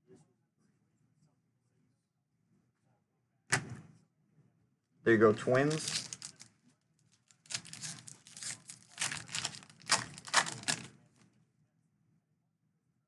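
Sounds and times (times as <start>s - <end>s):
foil wrapper tearing and crinkling: 5.7s - 6.5s, 7.3s - 10.9s.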